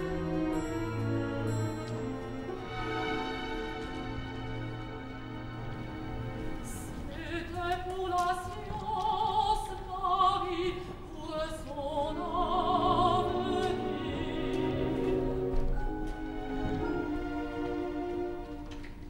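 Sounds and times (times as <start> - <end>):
orchestral accompaniment: 0.0 - 19.0
woman singing operatically: 6.6 - 15.3.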